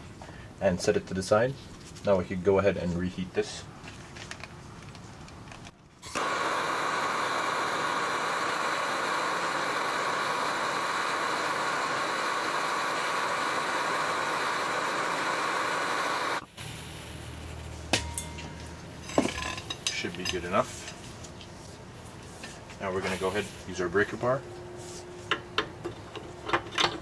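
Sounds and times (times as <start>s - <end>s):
gas torch hissing: 6.0s - 21.4s, 22.0s - 24.4s.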